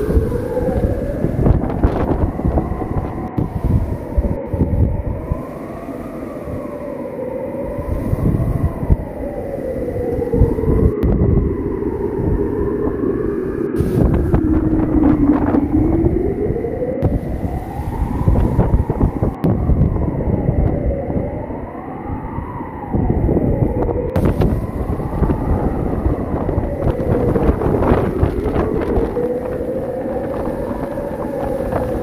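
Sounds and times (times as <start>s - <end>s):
wavering wind howl: 0.0s - 32.0s
wind buffeting microphone: 0.0s - 32.0s.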